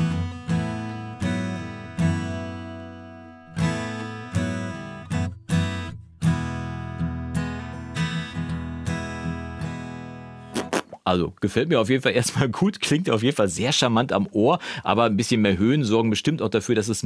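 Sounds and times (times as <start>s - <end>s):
acoustic guitar strumming chords: 0.0s - 10.6s.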